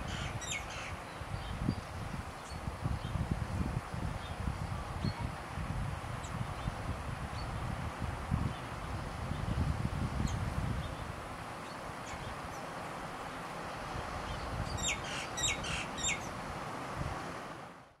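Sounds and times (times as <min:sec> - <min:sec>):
bird chirping: 0:00.0 - 0:01.8, 0:14.3 - 0:16.3
steady background hiss: 0:00.0 - 0:18.0.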